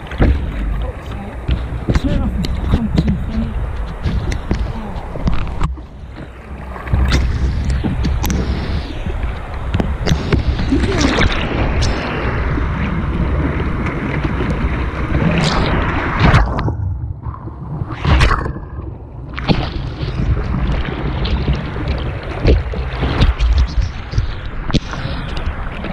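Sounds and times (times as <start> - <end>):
kayak paddling splashes: 0.0 - 16.6, 19.3 - 25.9
rushing white water: 0.0 - 16.6
wind buffeting microphone: 0.0 - 25.9.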